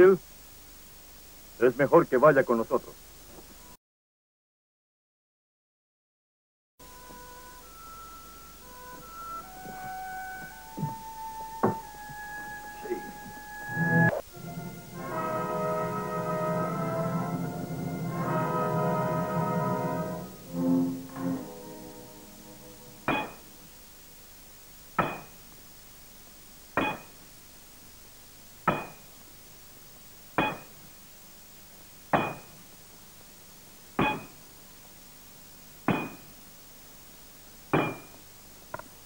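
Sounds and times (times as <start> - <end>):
hammer striking metal: 23.0 - 23.6, 25.0 - 25.4, 26.8 - 27.2, 28.7 - 29.1, 30.4 - 30.8, 32.1 - 32.6, 34.0 - 34.4, 35.9 - 36.3, 37.8 - 38.2.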